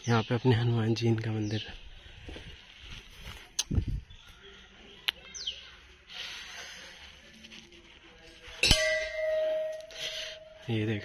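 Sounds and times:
temple bell ringing: 8.6s - 11.0s.

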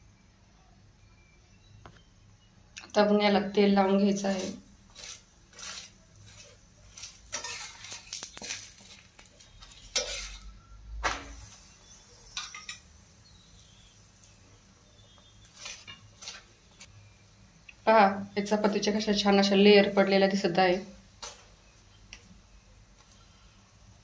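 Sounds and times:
steel spatula scraping on a griddle: 4.0s - 13.9s, 15.0s - 16.9s.

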